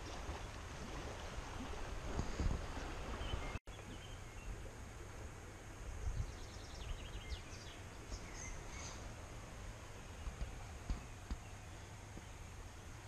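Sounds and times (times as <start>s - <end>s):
river water flowing: 0.0s - 13.0s
small birds chirping: 6.2s - 9.1s.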